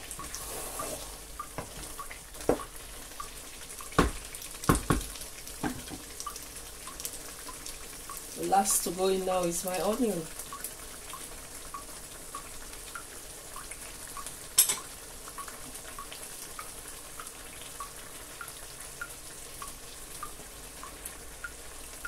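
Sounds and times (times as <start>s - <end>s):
soup simmering and bubbling: 0.0s - 22.0s
sharp knock: 4.0s - 5.8s.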